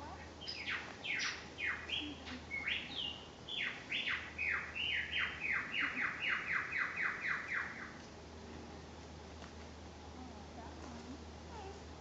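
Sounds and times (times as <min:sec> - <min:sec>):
lyrebird singing: 0:00.0 - 0:08.0.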